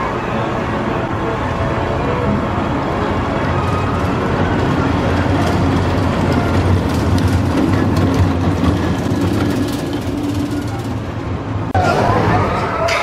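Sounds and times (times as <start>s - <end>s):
roller coaster train rumbling: 0.0s - 13.0s
wheel clicks and clatter: 3.6s - 11.7s.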